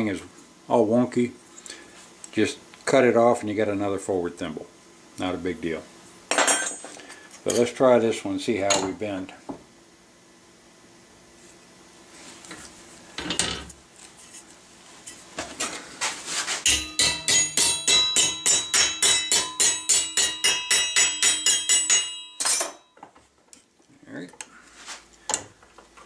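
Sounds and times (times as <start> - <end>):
hammer striking sheet metal: 16.6 - 22.9.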